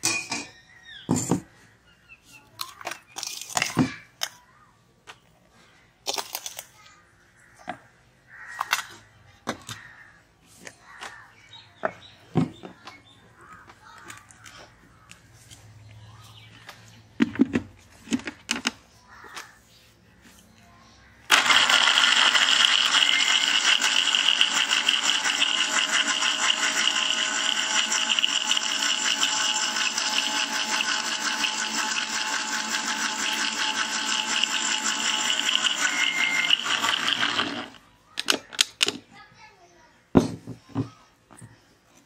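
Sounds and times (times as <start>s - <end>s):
mixer grinder whirring: 21.3s - 37.8s.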